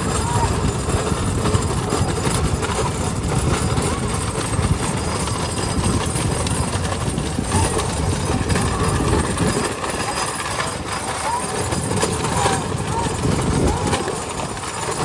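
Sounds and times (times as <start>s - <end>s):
motorbike running: 0.0s - 15.0s
wooden cart wheels rattling: 0.0s - 15.0s.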